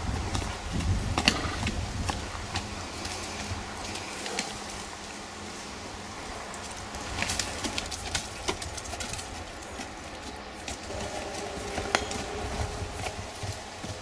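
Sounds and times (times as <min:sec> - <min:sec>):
hooves on sand and gravel: 0:00.0 - 0:14.0
bird cooing faintly: 0:10.8 - 0:14.0
low rumble: 0:10.9 - 0:14.0.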